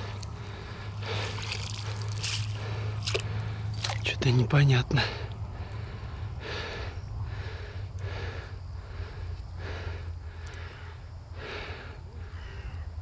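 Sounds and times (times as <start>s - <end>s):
person breathing close to microphone: 0.0s - 3.8s, 5.0s - 12.4s
steady low hum: 0.0s - 13.0s.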